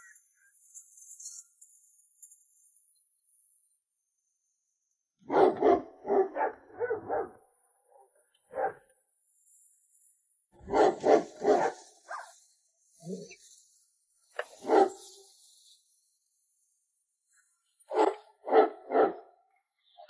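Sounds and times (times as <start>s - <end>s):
dog barking: 5.2s - 8.9s, 10.6s - 12.4s, 14.6s - 15.1s, 17.9s - 19.3s.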